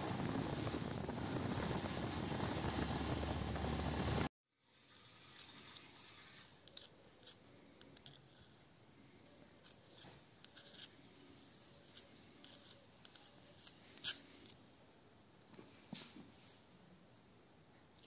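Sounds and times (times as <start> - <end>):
screwdriver clicks and scrapes: 11.9 - 14.6.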